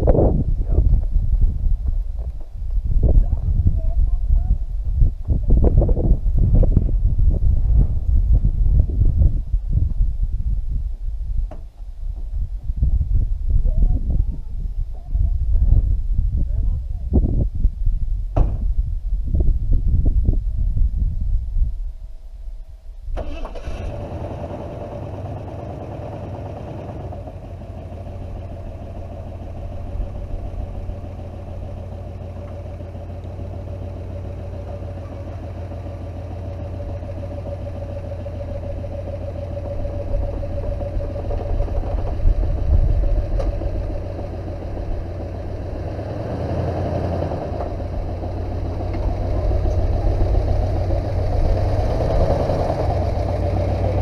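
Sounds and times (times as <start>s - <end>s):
truck engine running: 23.2s - 54.0s.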